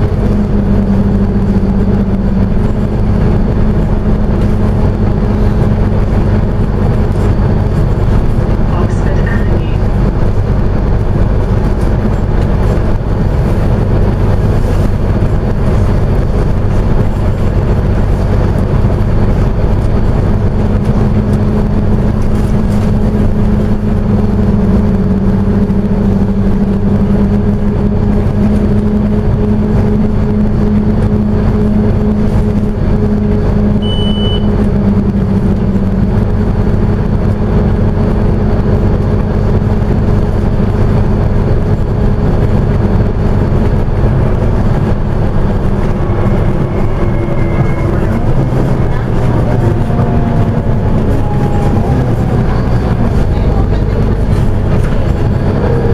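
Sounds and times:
bus diesel engine and road noise: 0.0 - 55.9
low hum: 0.0 - 55.9
short high beep: 33.8 - 34.6.

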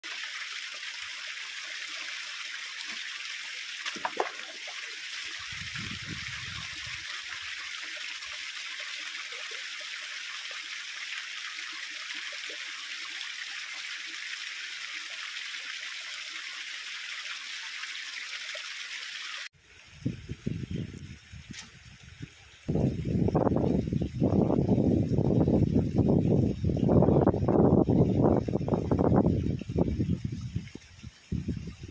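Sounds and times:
waterfall splashing over rocks: 0.0 - 19.5.

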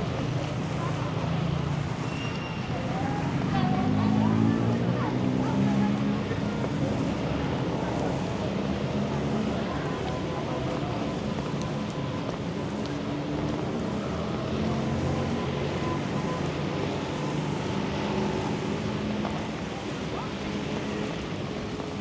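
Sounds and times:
motor traffic: 0.0 - 22.0
wet road noise: 0.0 - 22.0.

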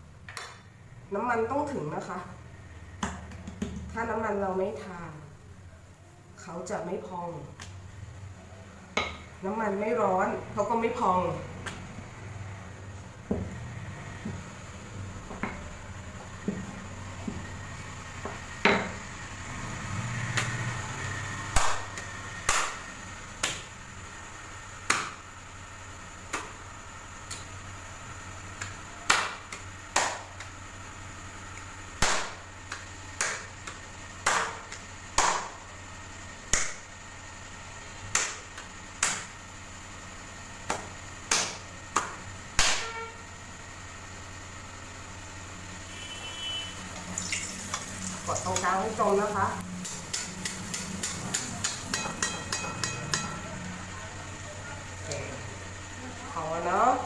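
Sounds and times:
dough slapped between palms: 21.5 - 22.8, 23.4 - 23.7, 24.8 - 25.2, 26.3 - 26.6, 28.6 - 30.6, 32.0 - 35.6, 36.5 - 36.9, 38.0 - 39.4, 40.6 - 42.9.

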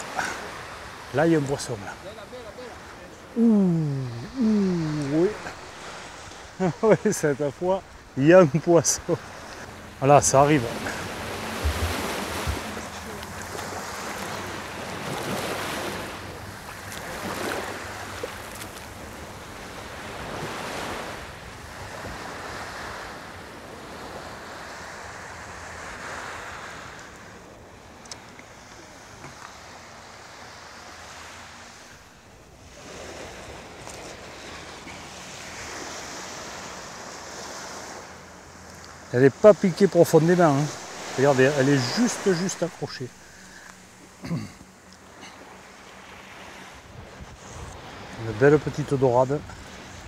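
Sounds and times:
small waves breaking on beach: 0.0 - 50.0
wind on microphone: 10.9 - 13.2.

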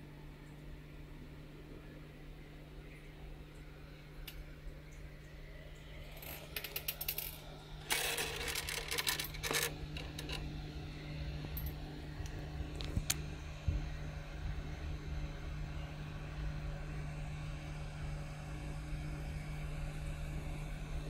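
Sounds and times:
steady low hum: 0.0 - 21.0
handling clicks and rattling: 7.8 - 10.4.

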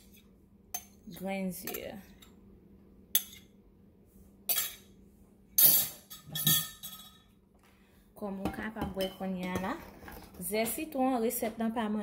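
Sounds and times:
utensils clinking on glass bowl: 4.5 - 4.9, 5.6 - 7.3.

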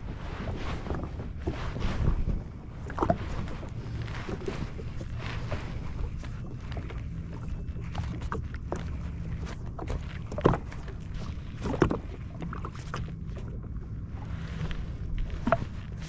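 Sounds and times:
steady low rumble: 0.0 - 16.0
waves slapping against hull: 0.0 - 16.0.

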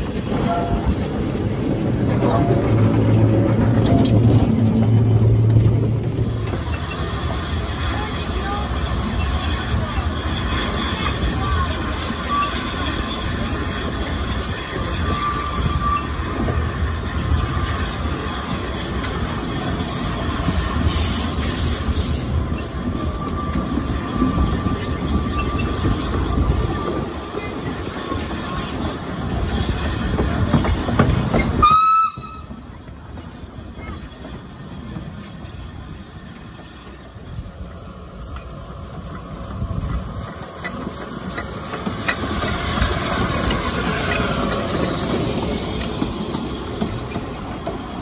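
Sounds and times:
wheels rattling on rail: 0.0 - 48.0
steam hiss: 6.3 - 27.9
train whistle: 31.6 - 32.6.

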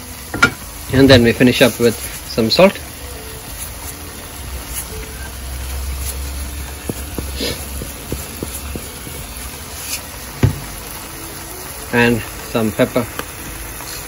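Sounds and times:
salt shaker light taps: 6.6 - 9.4
single thump: 10.4 - 10.7.

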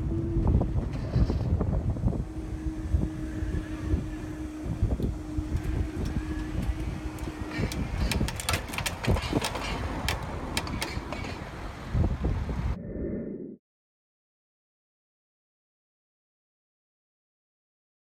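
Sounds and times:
barrier mechanism humming: 0.0 - 12.0
wind rumbling on microphone: 0.0 - 13.6
sharp clicks and knocks: 5.0 - 11.6.

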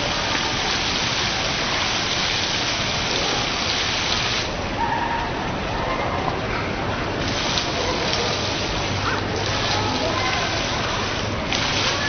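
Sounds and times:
waterfall splashing: 0.0 - 4.7, 7.2 - 12.0.

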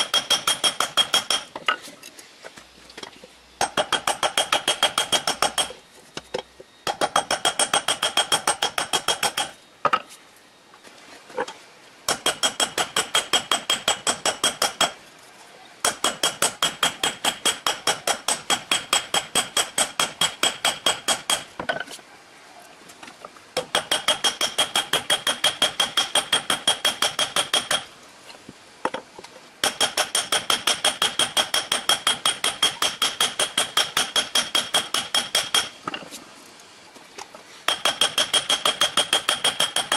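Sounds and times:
hammer striking steel on anvil: 0.0 - 1.5.

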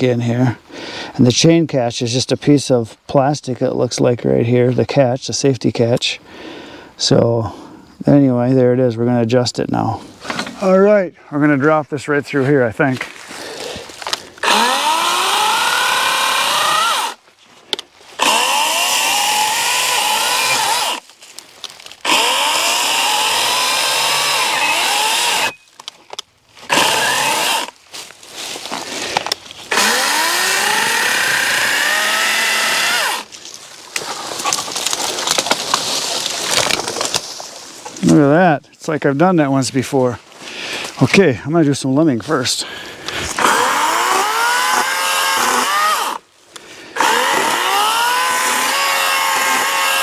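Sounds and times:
electric chainsaw cutting: 14.4 - 17.2, 18.2 - 21.0, 22.0 - 25.6, 26.7 - 27.8, 29.7 - 33.3, 43.3 - 46.2, 47.0 - 50.0
tree cracking and snapping: 18.2 - 26.0, 32.8 - 37.6.

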